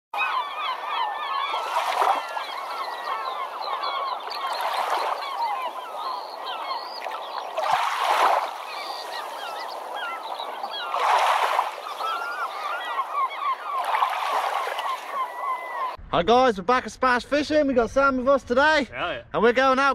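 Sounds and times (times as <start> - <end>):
flock of birds calling: 0.2 - 16.0.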